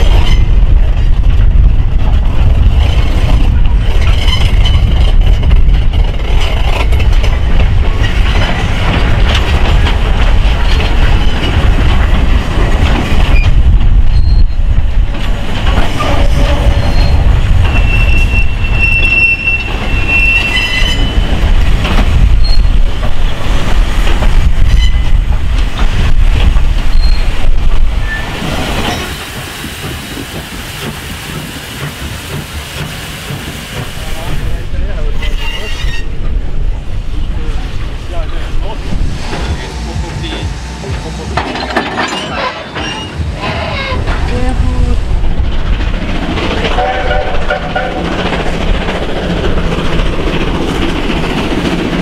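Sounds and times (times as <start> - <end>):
steam train rumbling past: 0.0 - 52.0
wheels clanking on rails: 0.0 - 52.0
high wheel squeal: 14.1 - 14.7, 16.0 - 21.4, 35.2 - 36.2, 42.0 - 44.0.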